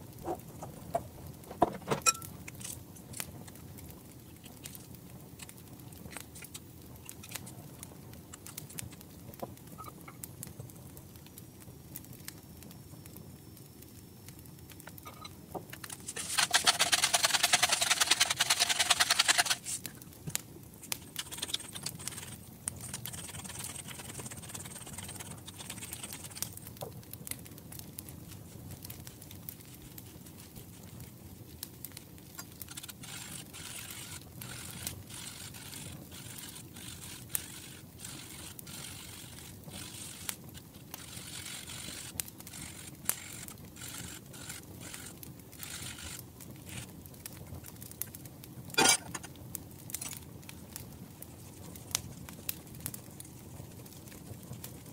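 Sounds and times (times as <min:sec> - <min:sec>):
pepper mill grinding: 0:15.8 - 0:19.8, 0:21.0 - 0:26.5, 0:32.7 - 0:40.3, 0:41.0 - 0:46.9
lemon zested on metal grater: 0:16.0 - 0:19.8, 0:21.0 - 0:26.5.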